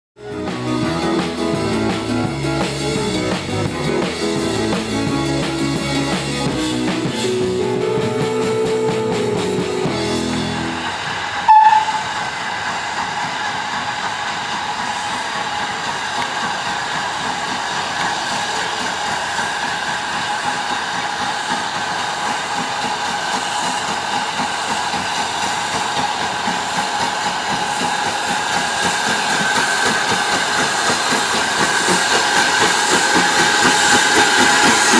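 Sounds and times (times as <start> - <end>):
music: 0.2 - 11.2
steam locomotive hissing and running: 0.2 - 34.9.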